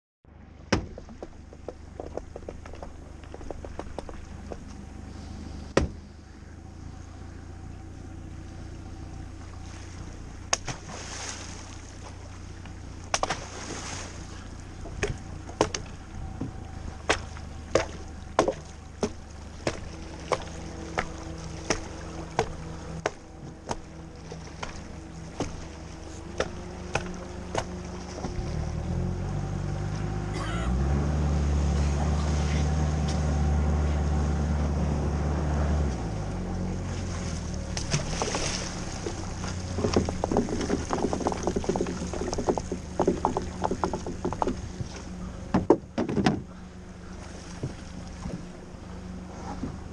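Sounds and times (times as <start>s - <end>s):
steady low rumble: 0.2s - 49.9s
knocks on aluminum boat: 45.5s - 46.5s.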